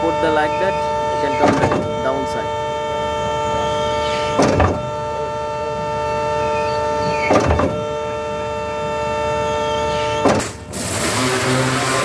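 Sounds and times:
concrete pump mechanical whine: 0.0 - 12.0
heavy clunk: 4.3 - 4.9, 7.3 - 7.8.

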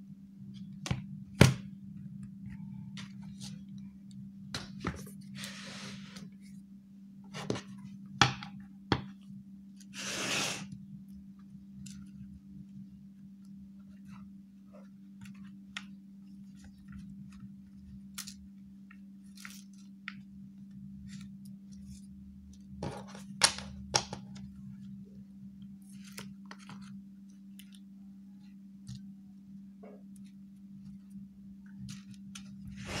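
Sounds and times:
paper cards flicked and tapped: 22.8 - 24.5.

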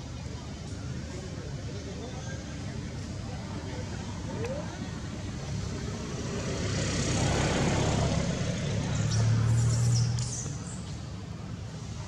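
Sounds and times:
vehicle engine passing by: 4.6 - 12.0.

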